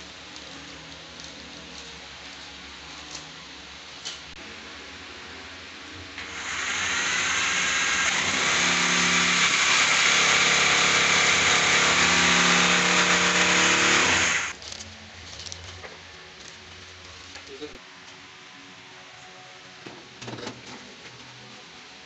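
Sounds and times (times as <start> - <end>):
hammer drill boring into masonry: 6.2 - 14.5.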